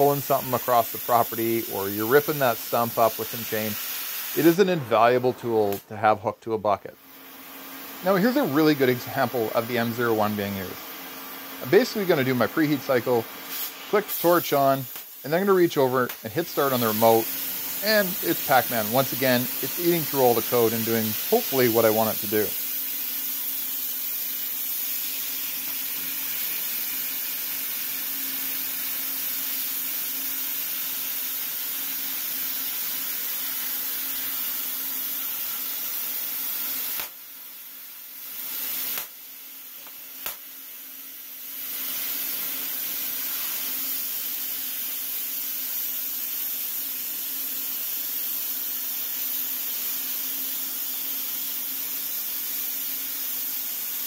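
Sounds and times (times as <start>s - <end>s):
cutting torch hissing: 0.0s - 6.2s, 7.0s - 54.0s
sharp click: 39.8s - 40.4s.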